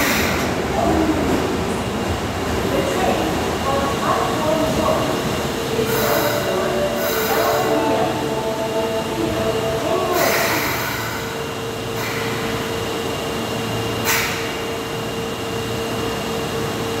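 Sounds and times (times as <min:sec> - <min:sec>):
subway train brakes squealing: 0:00.0 - 0:01.1, 0:05.7 - 0:13.1, 0:13.9 - 0:14.8
train humming: 0:00.0 - 0:17.0
air brake hiss: 0:10.2 - 0:12.6, 0:14.0 - 0:14.5.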